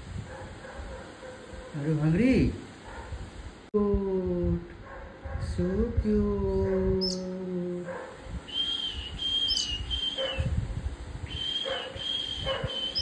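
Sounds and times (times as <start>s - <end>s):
fledgling bird begging calls: 7.0s - 7.2s, 8.5s - 10.6s, 11.2s - 13.0s.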